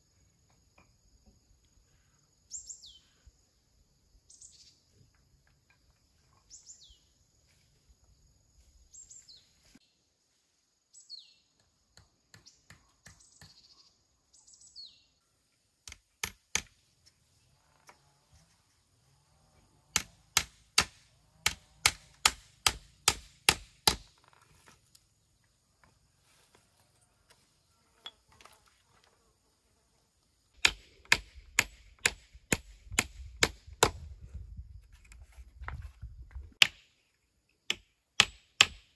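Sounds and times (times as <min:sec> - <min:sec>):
hammer driving nails into wood: 0:15.8 - 0:16.8, 0:19.9 - 0:24.2, 0:37.7 - 0:38.9.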